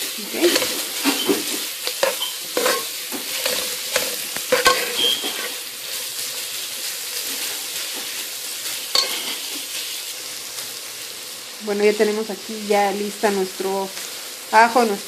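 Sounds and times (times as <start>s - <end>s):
onion and garlic sizzling in oil: 0.0s - 15.0s
metal spoon stirring and scraping: 0.4s - 6.0s, 8.9s - 9.5s.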